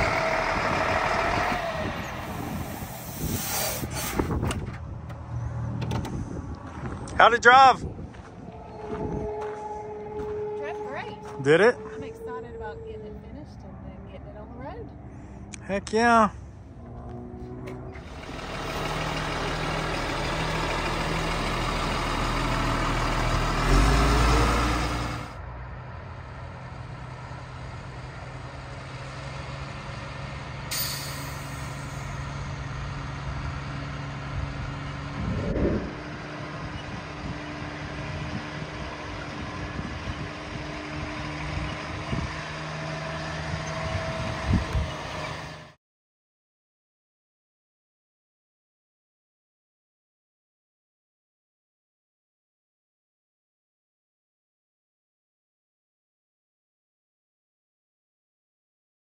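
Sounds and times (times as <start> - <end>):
diesel truck engine running: 0.0 - 15.4, 16.4 - 45.8
short sharp hiss: 2.8 - 4.3.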